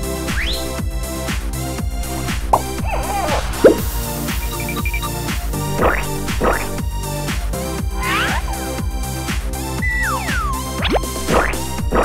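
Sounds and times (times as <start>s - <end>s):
electronic music with steady beat: 0.0s - 12.0s
sliding synth figure: 5.6s - 6.8s.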